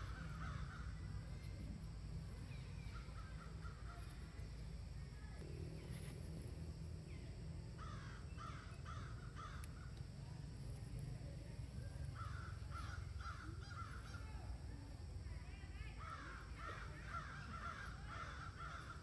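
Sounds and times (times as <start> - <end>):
crows cawing: 0.0 - 1.2, 7.8 - 9.9, 12.2 - 14.2, 16.0 - 19.0.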